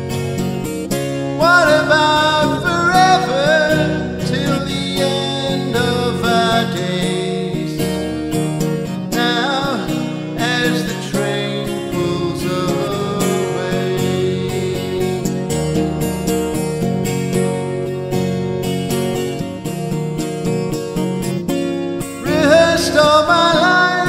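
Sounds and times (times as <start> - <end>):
acoustic guitar strumming: 0.0 - 24.0
man singing: 1.4 - 8.2, 9.0 - 15.5, 22.2 - 24.0.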